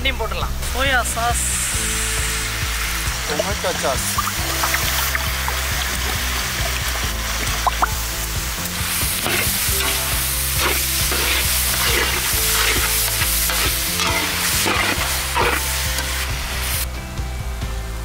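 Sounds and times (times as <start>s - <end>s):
food sizzling in sauce: 1.0s - 16.9s
metal spatula scraping pan: 9.1s - 16.4s.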